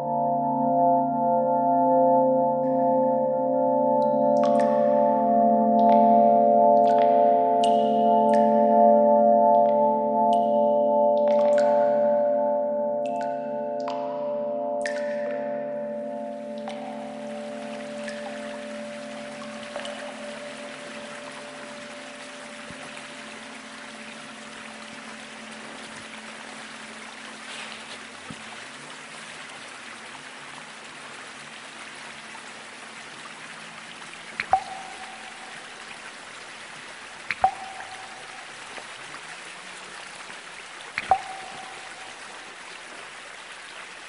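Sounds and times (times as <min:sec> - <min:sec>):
water drops plinking: 0:00.0 - 0:29.6, 0:32.1 - 0:39.7, 0:40.3 - 0:42.9
trickling water: 0:04.0 - 0:44.0.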